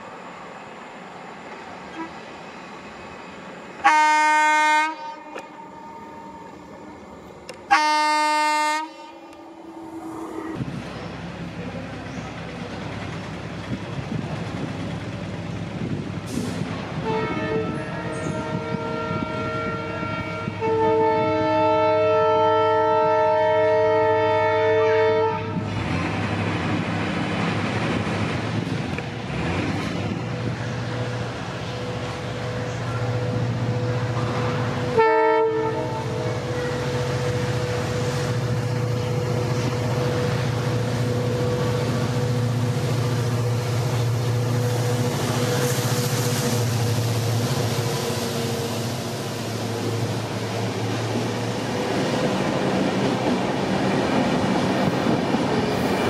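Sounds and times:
diesel locomotive engine drone: 0.0s - 56.0s
train rumble: 0.0s - 56.0s
locomotive air horn: 3.8s - 6.6s, 7.7s - 9.9s, 17.0s - 25.6s, 34.9s - 36.7s.

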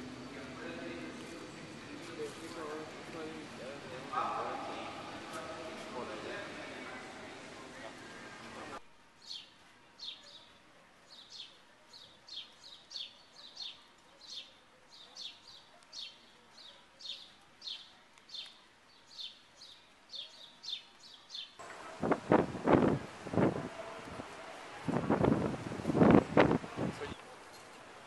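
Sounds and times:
loud rush of noise: 21.6s - 27.1s.

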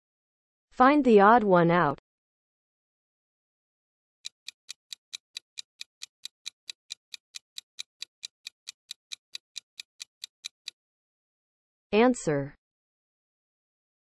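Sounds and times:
fast clock ticks: 4.2s - 10.8s.

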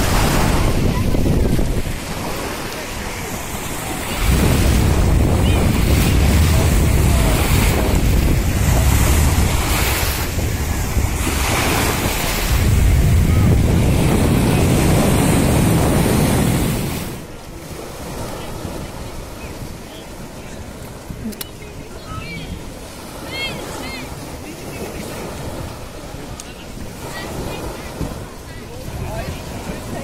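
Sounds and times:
small waves washing on shore: 0.0s - 30.0s
wind buffeting microphone: 0.0s - 30.0s.

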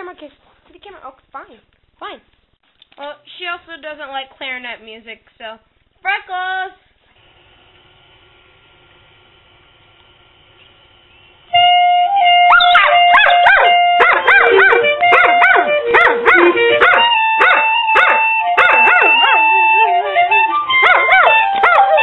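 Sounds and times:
music with held notes: 11.5s - 22.0s
dog howling and yipping: 12.5s - 20.0s, 20.8s - 22.0s.

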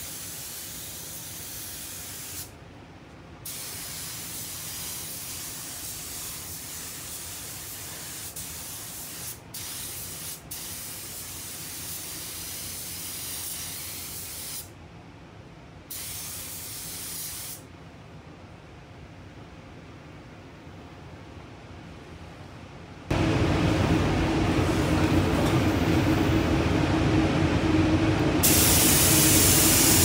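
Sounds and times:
spray gun hissing: 0.0s - 2.5s, 3.4s - 14.7s, 15.9s - 17.6s, 28.4s - 30.0s
steady hiss of moving air: 0.0s - 30.0s.

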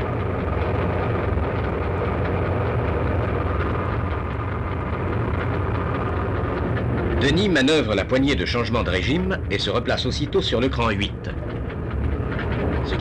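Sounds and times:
locomotive engine rumble: 0.0s - 13.0s.

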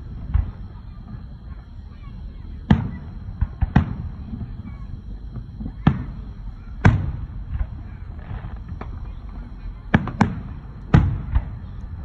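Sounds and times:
firework shells booming: 0.0s - 12.0s
faint firework pops: 0.2s - 1.7s, 2.6s - 12.0s.

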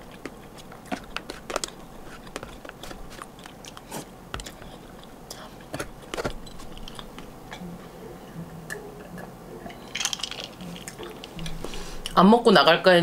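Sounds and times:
person drinking: 0.0s - 7.6s
person eating cake: 0.0s - 7.6s.

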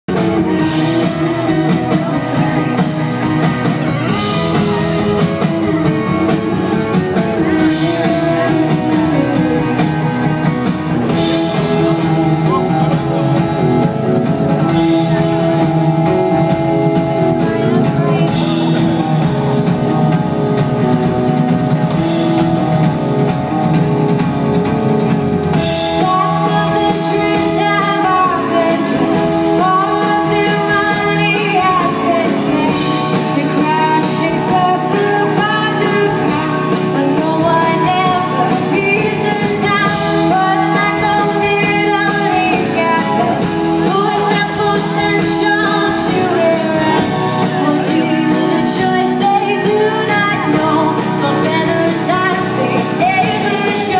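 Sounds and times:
drums: 0.0s - 53.9s
keyboards: 0.0s - 53.9s
woman singing: 0.1s - 13.9s, 25.5s - 53.9s
electric guitar: 0.1s - 53.9s.

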